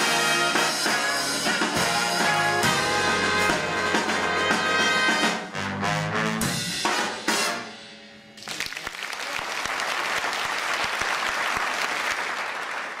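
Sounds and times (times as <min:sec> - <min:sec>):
audience applauding: 0:08.4 - 0:13.0.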